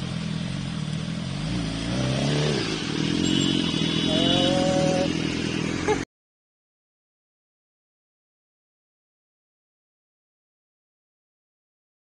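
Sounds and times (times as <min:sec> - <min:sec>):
motorbike engine revving: 0:00.0 - 0:06.0
motorbike engines idling: 0:00.0 - 0:06.0.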